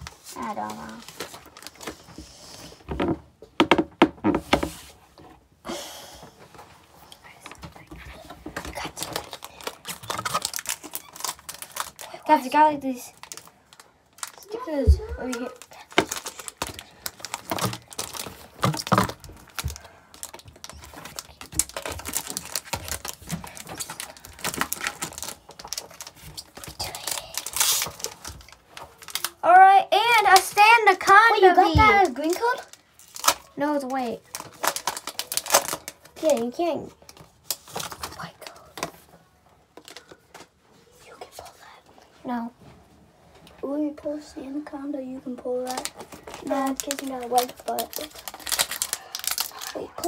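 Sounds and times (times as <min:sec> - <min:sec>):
foil wrapper crinkling: 0:00.0 - 0:02.0, 0:08.8 - 0:29.4, 0:31.9 - 0:38.6, 0:45.5 - 0:50.0.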